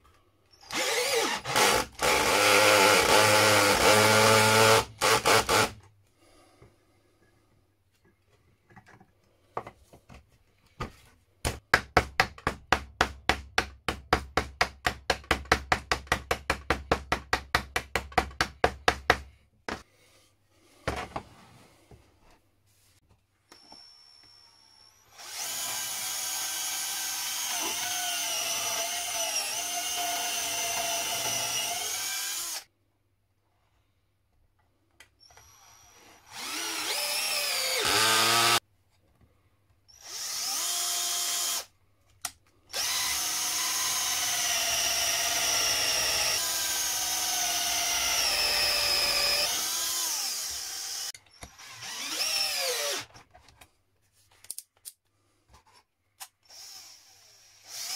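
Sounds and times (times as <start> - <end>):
cordless drill whining into wood: 0.5 - 5.8, 23.5 - 32.7, 35.2 - 38.6, 39.9 - 41.7, 42.7 - 53.2, 56.4 - 57.9.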